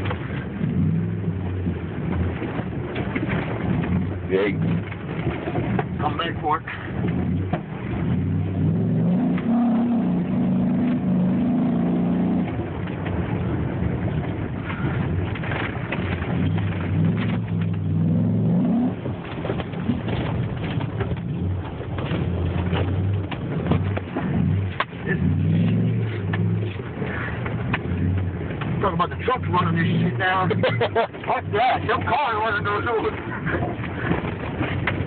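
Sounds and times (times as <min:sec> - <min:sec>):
engine accelerating hard: 0:00.0 - 0:35.0
knocks and rattles: 0:01.5 - 0:06.2, 0:12.4 - 0:18.2, 0:18.9 - 0:35.0.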